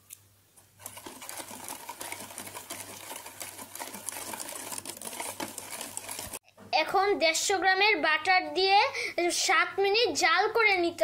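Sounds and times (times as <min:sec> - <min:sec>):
whisk rattling against metal pan: 0:00.8 - 0:06.4.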